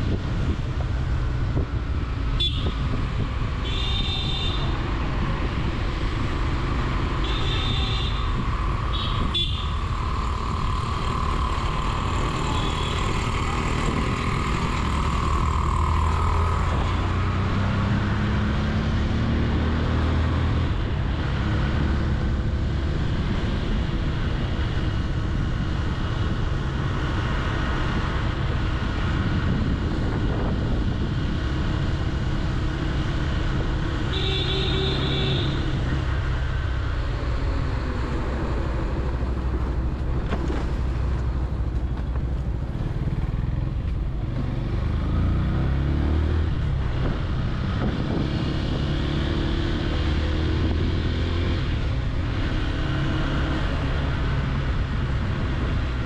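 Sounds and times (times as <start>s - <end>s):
motorcycle engine accelerating: 8.3s - 34.0s, 41.8s - 56.0s
wind on microphone: 22.4s - 34.1s, 46.3s - 53.0s.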